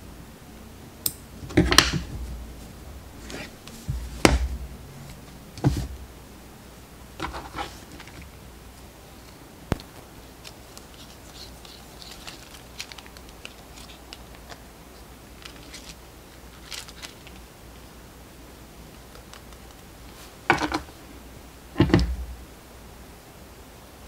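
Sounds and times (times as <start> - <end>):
soft rustles: 1.5 - 6.1, 7.2 - 8.4.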